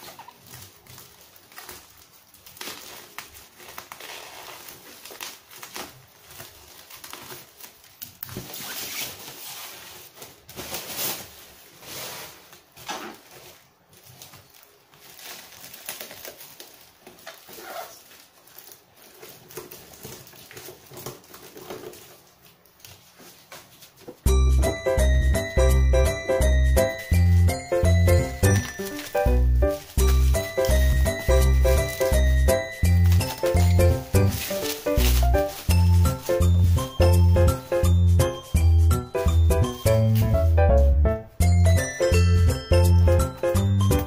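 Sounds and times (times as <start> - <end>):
cardboard flaps scraping: 0.0 - 14.5, 26.5 - 38.0
bubble wrap crinkling: 0.0 - 44.0
music: 24.2 - 44.0.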